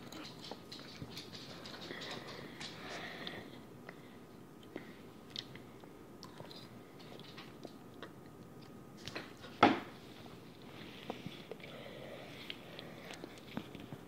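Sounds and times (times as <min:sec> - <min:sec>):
person chewing noodles: 0:04.6 - 0:08.8, 0:10.8 - 0:14.0.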